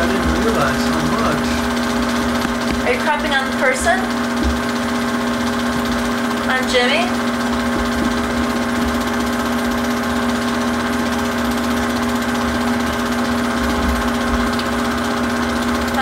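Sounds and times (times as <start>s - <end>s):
film projector whirring: 0.0s - 16.0s.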